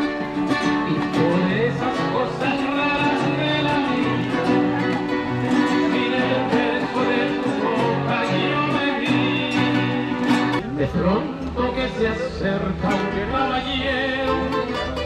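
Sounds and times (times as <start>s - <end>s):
acoustic guitars playing ballad: 0.0s - 15.0s.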